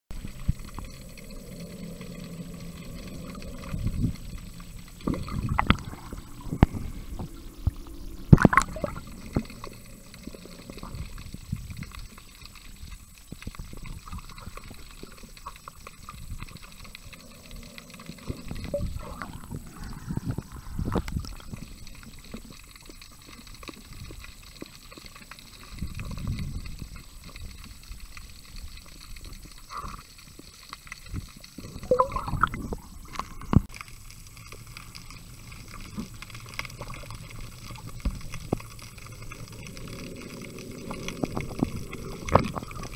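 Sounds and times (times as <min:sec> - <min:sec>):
underwater clicks and knocks: 0:00.1 - 0:12.7, 0:35.7 - 0:42.9
underwater sloshing and bubbling: 0:00.1 - 0:42.9.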